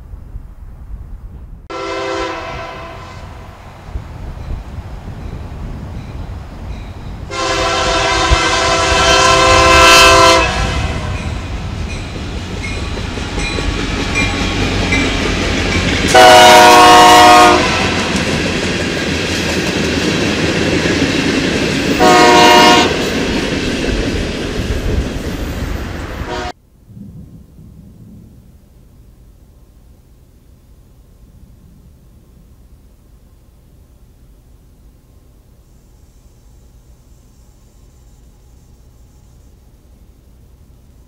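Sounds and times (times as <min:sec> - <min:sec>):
train wheels rumbling on rails: 0:00.0 - 0:29.4
locomotive air horn: 0:01.7 - 0:03.5, 0:07.3 - 0:11.5, 0:16.1 - 0:18.2, 0:22.0 - 0:23.1, 0:26.2 - 0:26.6.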